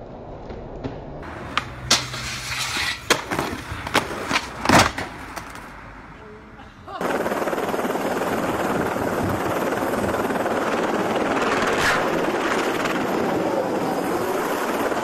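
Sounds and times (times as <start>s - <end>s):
helicopter engine: 7.0s - 15.0s
helicopter rotor chopping: 7.0s - 15.0s.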